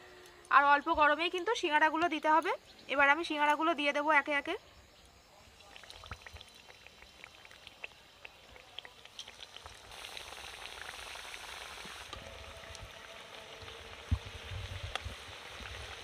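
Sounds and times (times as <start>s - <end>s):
pastries sizzling in hot oil: 5.6s - 16.0s.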